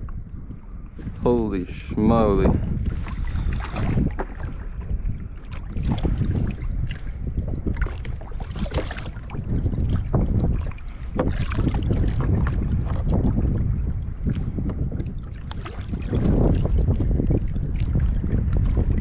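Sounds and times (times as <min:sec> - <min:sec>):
wind buffeting microphone: 0:00.0 - 0:19.0
eel splashing in water: 0:07.8 - 0:09.4.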